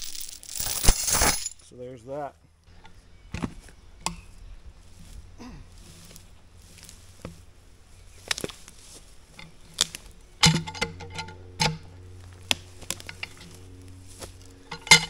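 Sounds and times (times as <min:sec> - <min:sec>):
metal chain clinking: 0:00.0 - 0:01.7, 0:09.3 - 0:11.9, 0:12.9 - 0:13.8, 0:14.6 - 0:15.0
steady low hum: 0:00.0 - 0:15.0
sharp metal knocks: 0:10.4 - 0:13.6, 0:14.6 - 0:15.0.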